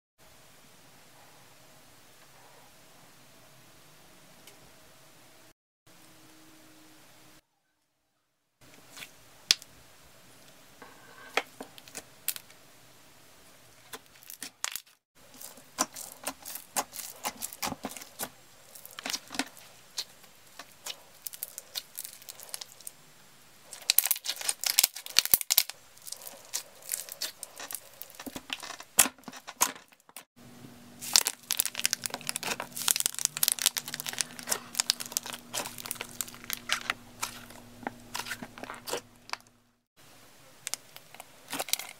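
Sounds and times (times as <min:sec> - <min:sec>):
slime squished by hand: 0:31.0 - 0:39.0.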